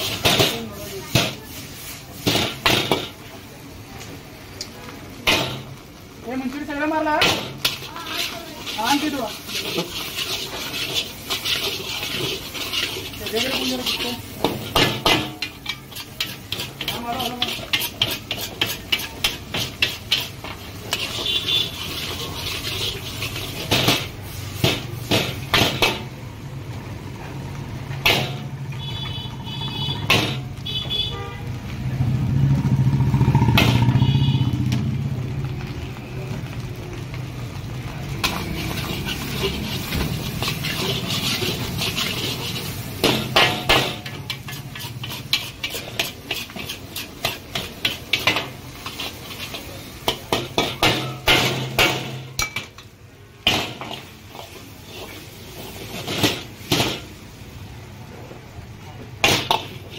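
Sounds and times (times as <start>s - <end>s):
metal spatula scraping a wok: 0.0s - 3.2s, 6.4s - 26.1s, 28.0s - 31.0s, 38.2s - 57.4s, 59.2s - 59.9s
low rumble of passing vehicle: 31.5s - 42.9s.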